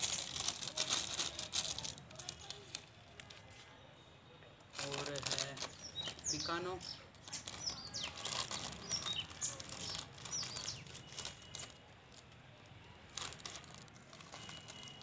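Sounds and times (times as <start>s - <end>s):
plastic packet crinkling: 0.0s - 3.5s, 4.7s - 15.0s.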